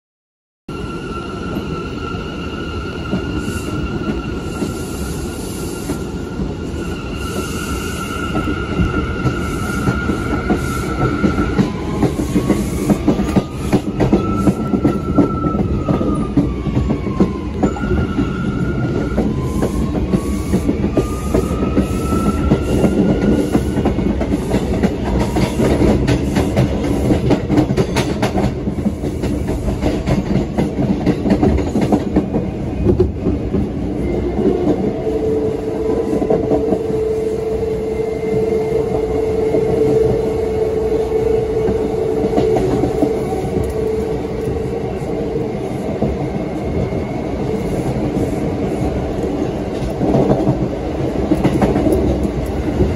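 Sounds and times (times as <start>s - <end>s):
train wheels clattering on rails: 8.2s - 34.9s, 41.6s - 52.9s.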